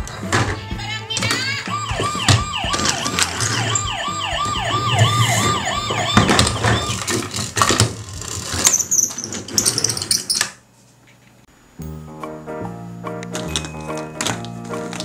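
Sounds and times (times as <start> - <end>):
toy ambulance siren: 1.4 - 7.3
plastic toy vehicles clicking: 2.7 - 3.7, 6.3 - 10.6, 13.4 - 15.0.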